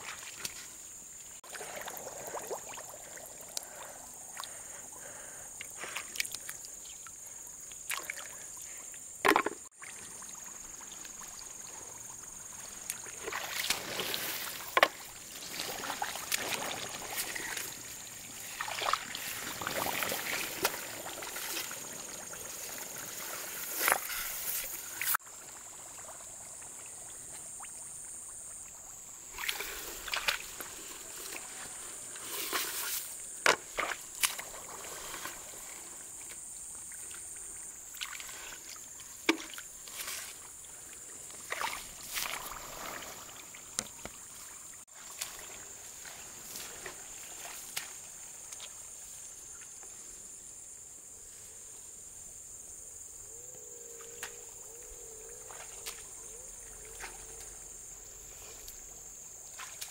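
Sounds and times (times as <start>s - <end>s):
insects droning: 0.0s - 59.9s
muddy water splashing: 1.4s - 27.8s, 29.2s - 48.8s.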